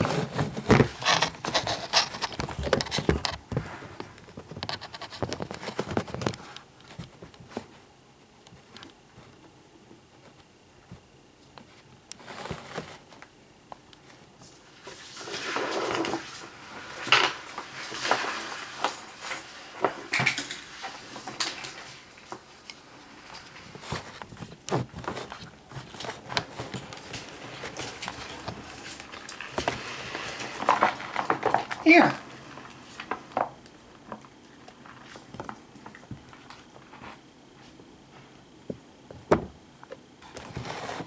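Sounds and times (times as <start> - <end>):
things handled in plastic tub: 14.8 - 22.5, 23.3 - 32.2.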